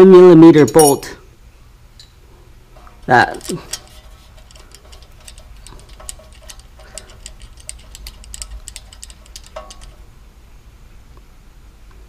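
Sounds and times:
ratchet wrench clicking: 0:03.0 - 0:10.1.

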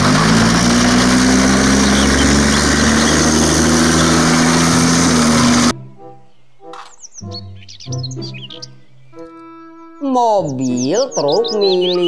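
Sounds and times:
tracked vehicle engine running: 0:00.0 - 0:05.7.

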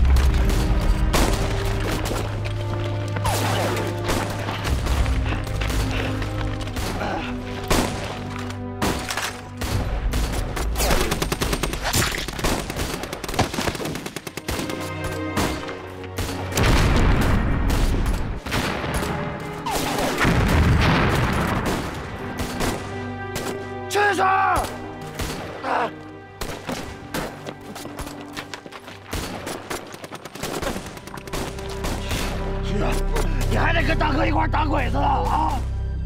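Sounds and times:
dramatic background music: 0:00.0 - 0:36.0
rapid gunfire: 0:09.7 - 0:14.9, 0:29.1 - 0:32.1
explosions: 0:16.6 - 0:19.1, 0:20.0 - 0:22.1.

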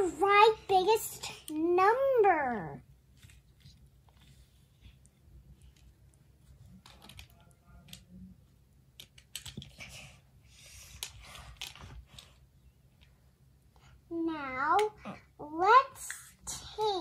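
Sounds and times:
plastic toy pieces clicking: 0:09.0 - 0:09.7.

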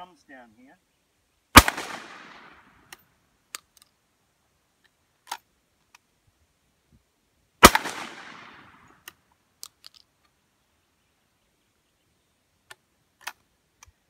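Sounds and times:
shotgun shot with echo: 0:01.6 - 0:02.6, 0:07.6 - 0:08.8.

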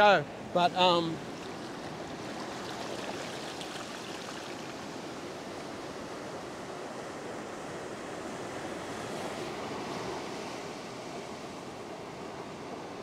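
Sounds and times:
ocean surf breaking: 0:00.0 - 0:06.0
water washing over sand: 0:01.0 - 0:05.1.

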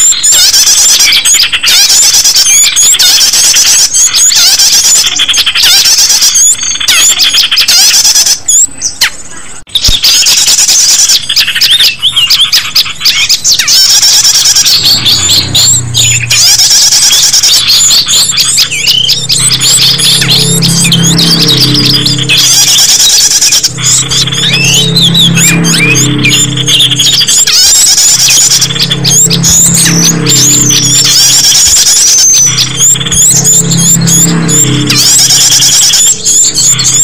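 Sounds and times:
songbirds chirping: 0:00.0 - 0:37.0
low hum: 0:14.7 - 0:37.0.

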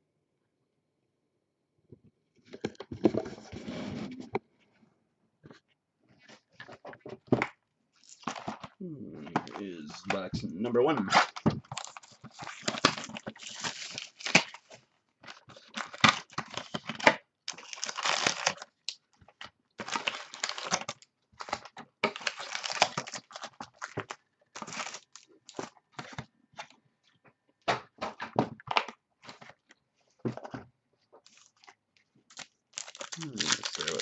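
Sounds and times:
plastic wrap and cardboard rustling: 0:06.1 - 0:26.8, 0:28.6 - 0:34.0.

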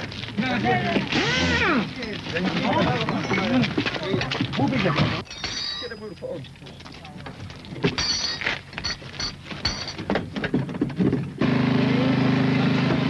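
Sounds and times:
tools clanking and knocking: 0:02.0 - 0:11.4
loud steady mechanical drone: 0:11.4 - 0:13.0.

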